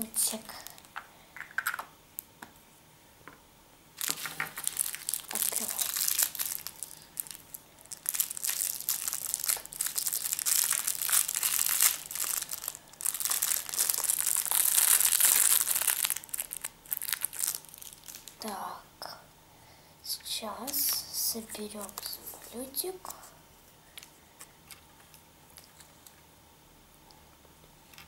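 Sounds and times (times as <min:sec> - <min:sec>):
plastic bag crinkling and tearing: 0:00.0 - 0:00.9, 0:04.0 - 0:18.4.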